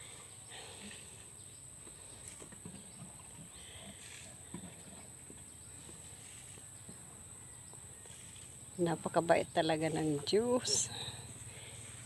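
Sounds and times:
rustling plants: 0.0 - 7.0.

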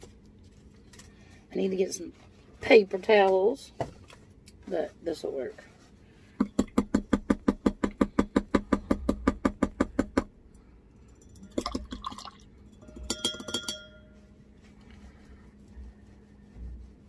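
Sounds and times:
handle clinking against metal cup: 12.8 - 14.0
knocks on ringing metal cup: 12.8 - 14.0
brush swishing in water: 13.9 - 17.0.

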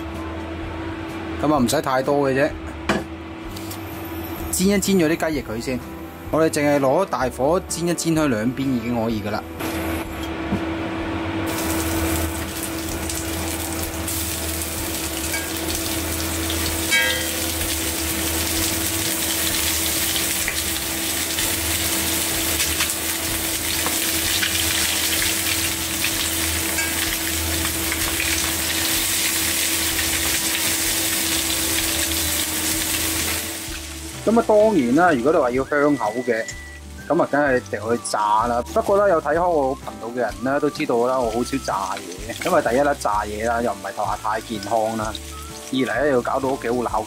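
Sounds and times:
chicken wings sizzling in oil: 11.4 - 47.0.

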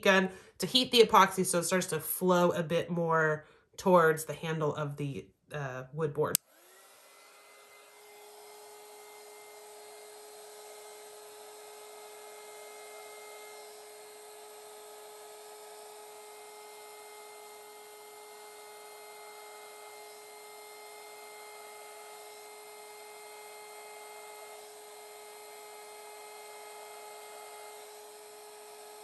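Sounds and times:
heat gun blowing and whining: 6.3 - 29.0.

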